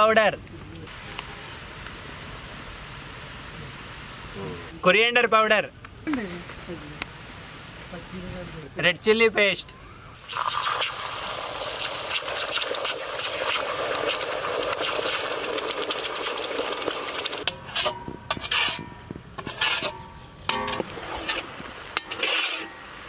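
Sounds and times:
hot oil sizzling in a wok: 10.2 - 17.5
metal ladle scraping a wok: 17.4 - 22.8.

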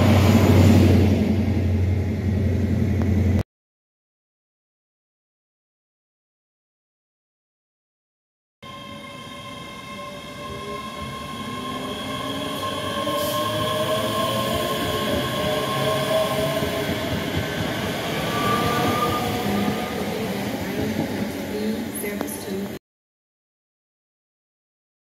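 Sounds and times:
electric train whine: 0.0 - 3.4, 8.6 - 22.8
train rumble: 0.0 - 3.4, 10.0 - 22.8.

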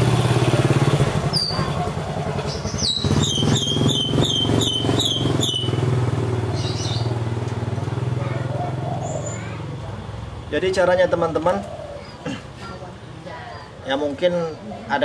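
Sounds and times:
engine droning: 0.0 - 15.0
high chirps: 2.4 - 7.3.

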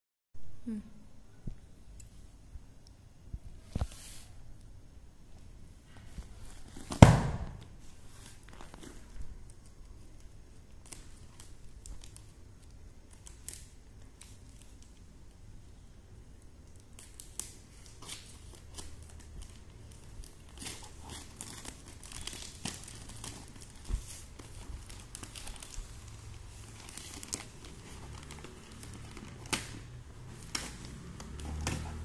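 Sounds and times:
plastic wrapping crinkling and tearing: 6.4 - 15.1, 16.4 - 32.0.

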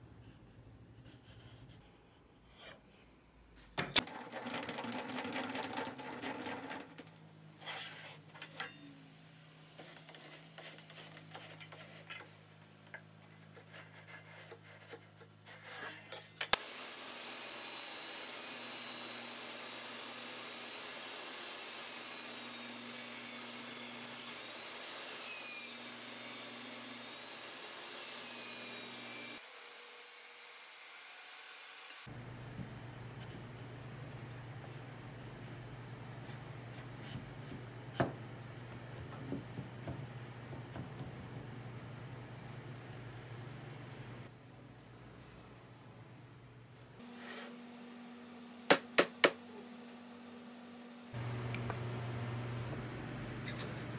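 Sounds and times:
wood scraping against wood: 7.6 - 8.3
table saw running: 16.6 - 32.1.

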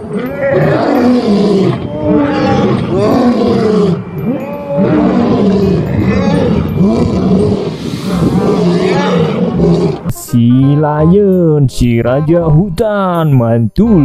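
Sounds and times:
lions roaring: 0.0 - 10.1.

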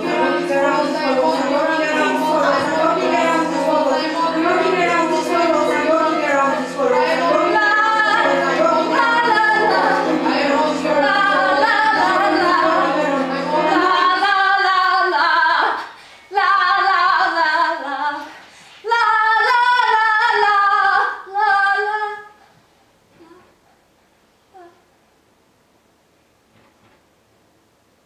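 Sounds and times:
woman singing: 0.0 - 22.4.

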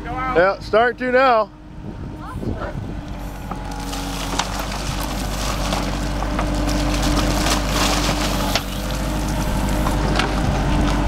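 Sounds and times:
tractor diesel engine running: 0.0 - 11.0
bucket cracking and scraping: 3.4 - 11.0.

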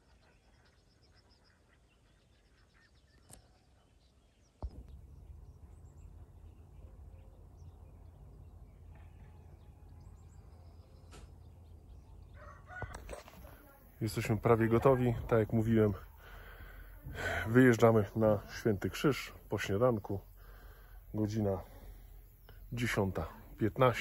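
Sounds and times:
birds chirping: 0.0 - 24.0
low rumble: 4.6 - 12.4.

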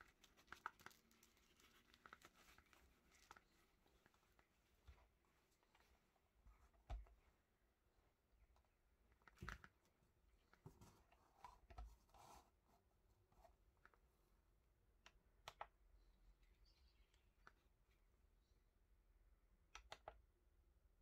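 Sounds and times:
handling knocks and rustles: 10.5 - 12.1.

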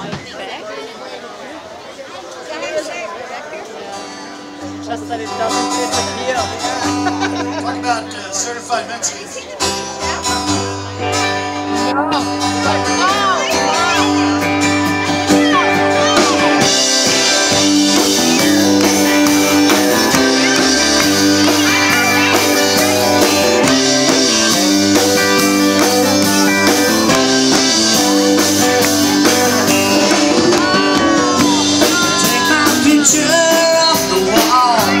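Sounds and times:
acoustic guitar: 3.6 - 35.0
electric guitars: 4.0 - 35.0
accordion holding long chords: 10.9 - 35.0.

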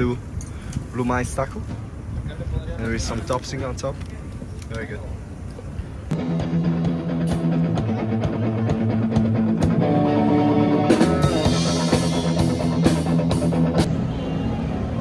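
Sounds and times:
drum strikes: 6.1 - 13.9
electric guitar chords: 6.1 - 14.0.

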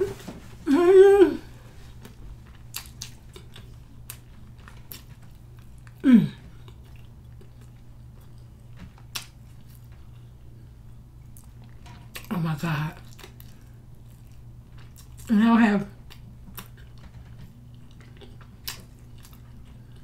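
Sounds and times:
person humming: 0.0 - 1.6, 6.0 - 6.4
person chewing: 1.9 - 12.3, 13.0 - 15.3, 16.0 - 20.0.

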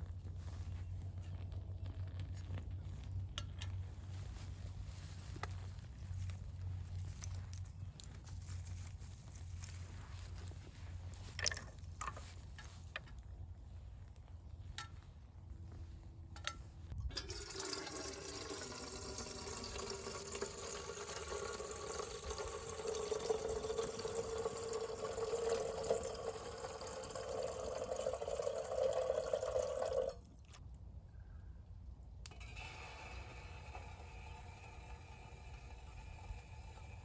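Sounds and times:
water pouring into kettle: 17.1 - 30.2.

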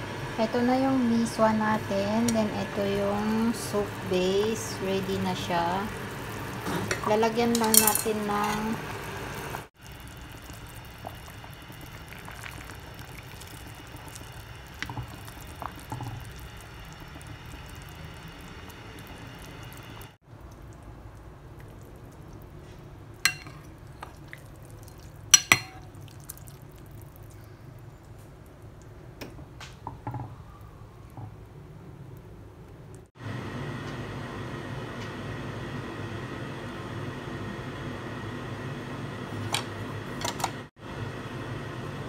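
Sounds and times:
soup bubbling in a pot: 3.2 - 7.5, 8.2 - 33.1
metal ladle clinking on bowl: 6.9 - 8.7, 23.3 - 23.6, 25.3 - 25.9.

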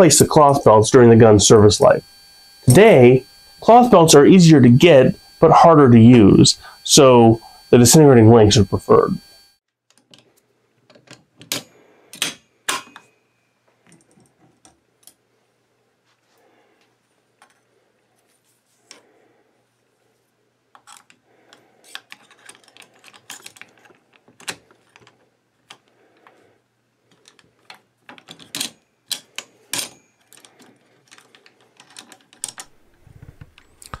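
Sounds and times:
metal cartridge links rattling: 21.9 - 25.8.

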